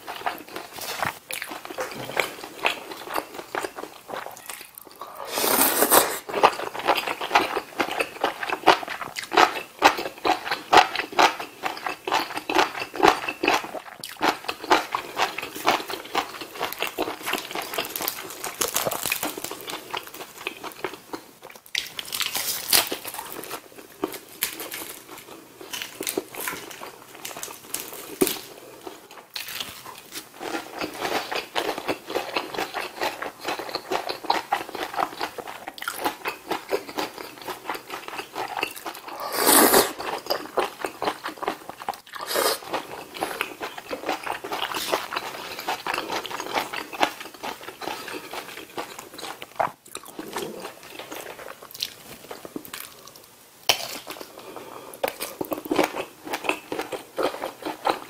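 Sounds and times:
crunching and chewing fried food: 0.0s - 58.0s
noodle slurp: 5.0s - 6.3s, 39.1s - 40.0s.

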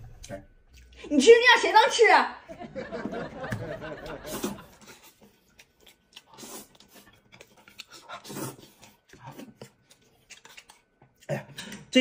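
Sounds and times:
man slurping and chewing noodles: 0.0s - 1.0s, 4.2s - 11.9s.

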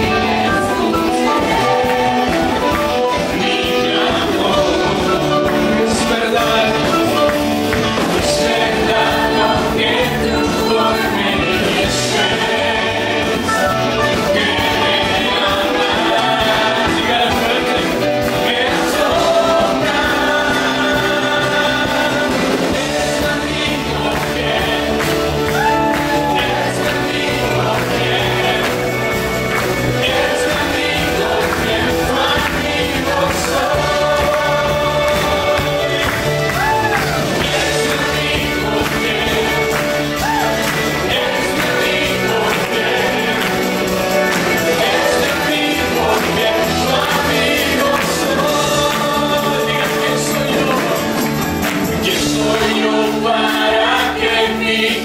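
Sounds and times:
worship band playing: 0.0s - 55.0s
man singing into a microphone: 3.4s - 7.3s, 8.0s - 25.0s, 44.7s - 51.2s.

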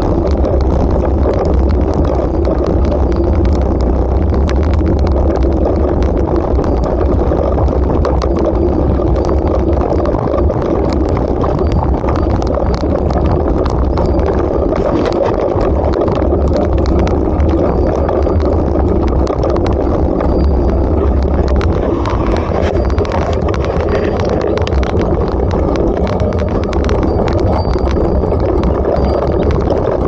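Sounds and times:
small clicks and knocks of stones: 0.0s - 30.0s
wind rumble on microphone: 0.0s - 30.0s
bicycle tyres crunching on gravel: 10.3s - 29.9s.

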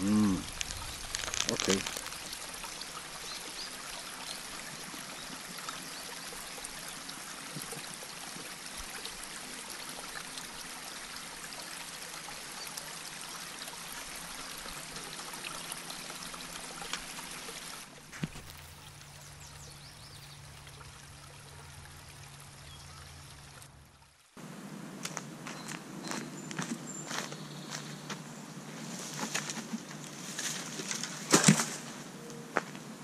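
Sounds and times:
creek water running: 0.0s - 24.6s.

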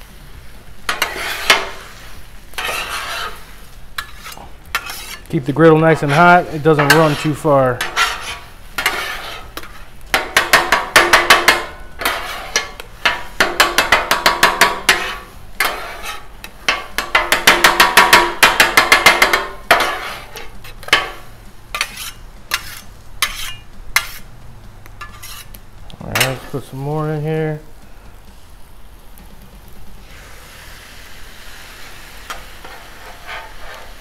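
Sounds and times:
spatula taps and scrapes: 0.9s - 1.8s, 2.6s - 3.4s, 4.0s - 5.3s, 6.0s - 26.5s
metal spatulas striking griddle: 0.9s - 24.3s, 25.0s - 27.0s, 32.3s - 34.0s.

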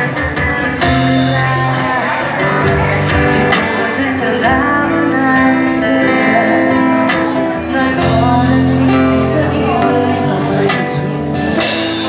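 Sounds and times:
strummed acoustic guitar: 0.0s - 12.0s
woman singing into a microphone: 0.8s - 11.7s.

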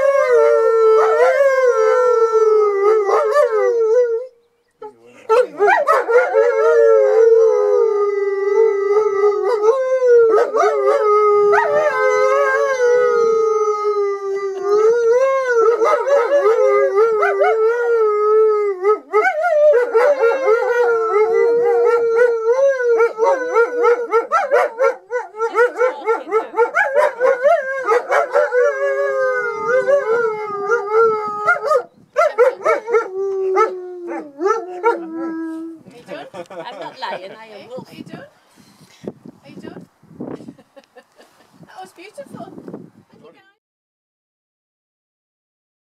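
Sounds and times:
wolves howling: 0.0s - 35.9s.

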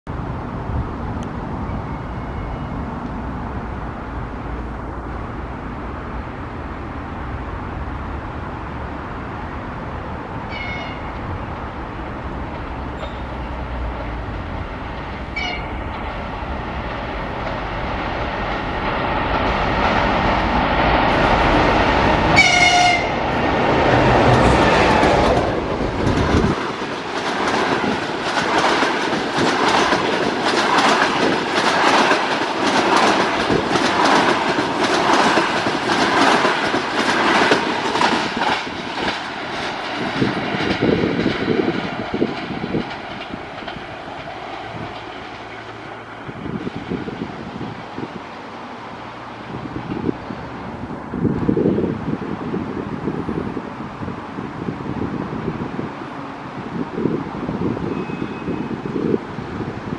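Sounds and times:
electric locomotive rumbling: 0.1s - 59.9s
train horn toots: 10.5s - 11.2s, 15.3s - 15.9s, 22.3s - 23.2s, 57.9s - 58.8s
wheels clacking over rail joints: 10.5s - 48.0s.

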